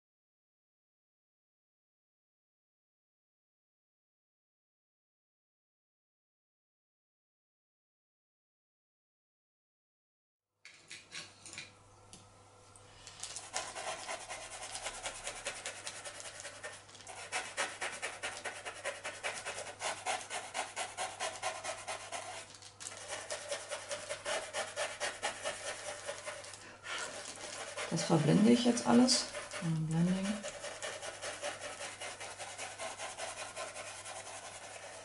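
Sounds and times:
brush rubbing charcoal on paper: 13.0 - 35.0.

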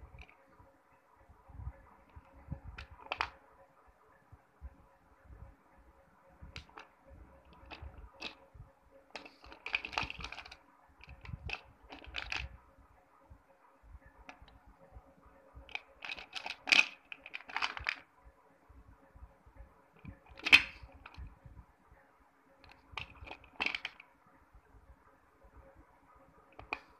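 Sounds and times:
slate pieces clacking together: 15.7 - 18.0, 22.7 - 24.0.

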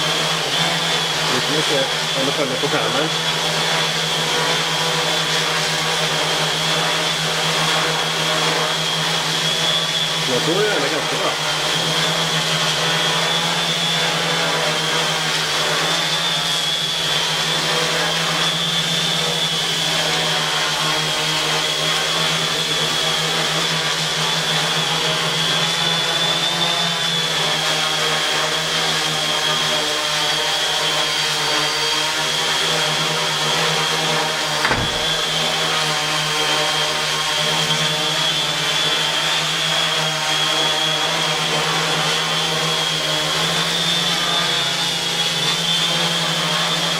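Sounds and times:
drone motors buzzing: 27.2 - 35.6
brief knock: 34.6 - 35.4.

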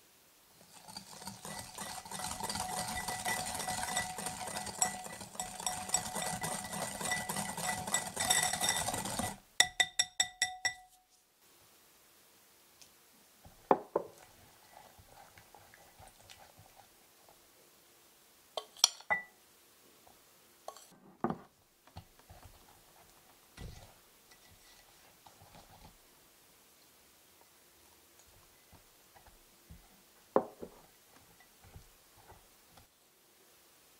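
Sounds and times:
whisk scraping glass bowl: 0.5 - 9.8, 14.5 - 16.9, 23.6 - 26.0, 31.2 - 32.4
spatula stirring: 0.5 - 11.0, 13.4 - 17.4, 18.6 - 19.3, 20.7 - 20.9, 22.0 - 26.0, 28.2 - 32.9
whisk tapping on bowl: 0.6 - 11.0
glass clinks: 9.6 - 11.0, 18.8 - 19.3.

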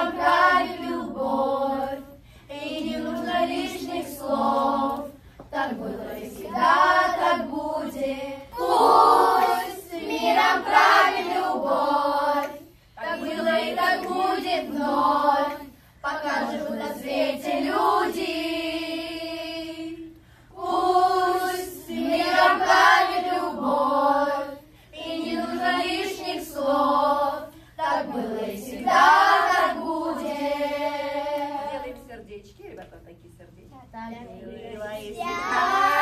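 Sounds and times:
children and woman singing: 0.0 - 32.1, 34.0 - 36.0.

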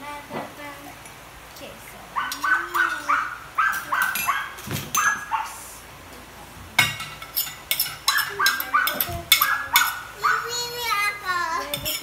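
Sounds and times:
small dog yapping: 2.2 - 5.6, 8.1 - 10.6
plates and spoons clinking: 2.3 - 5.3, 6.8 - 10.1, 11.6 - 12.0.

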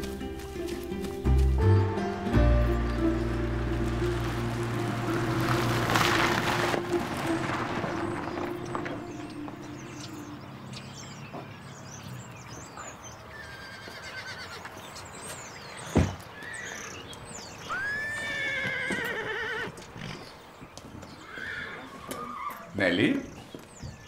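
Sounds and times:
car engine hum: 1.9 - 12.3
horse whinnying: 13.4 - 14.6, 17.7 - 20.3, 21.2 - 22.8.

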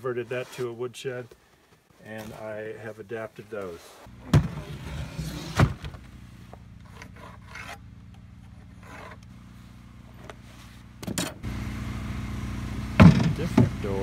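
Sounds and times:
low steady hum: 0.0 - 14.0
wood scraping and rubbing: 3.6 - 7.8, 8.4 - 9.3.

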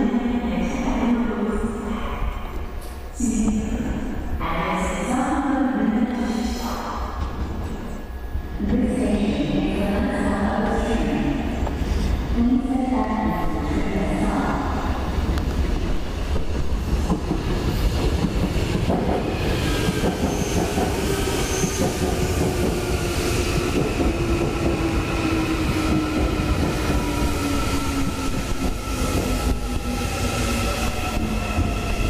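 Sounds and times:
train wheels clacking on rails: 17.0 - 24.9.

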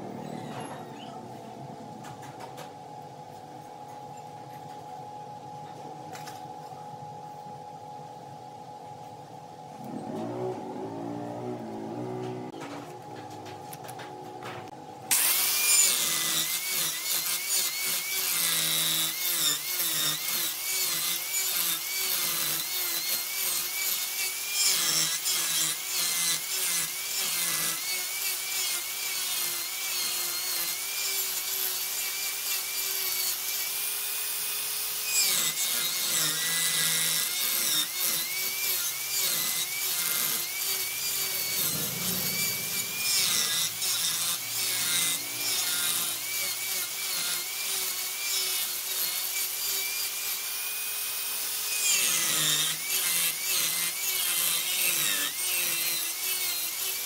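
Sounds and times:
wood lathe motor hum: 15.1 - 57.0.

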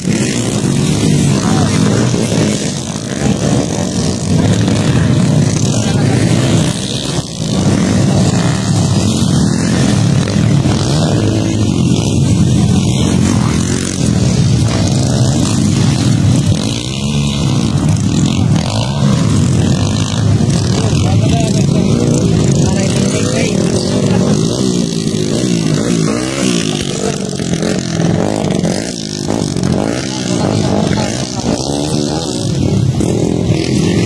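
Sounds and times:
dirt bike engines revving: 0.0 - 34.0.

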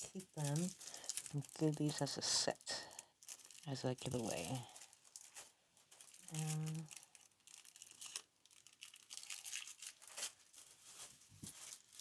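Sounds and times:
plastic packaging crinkling: 0.0 - 12.0
person humming: 6.2 - 6.9.

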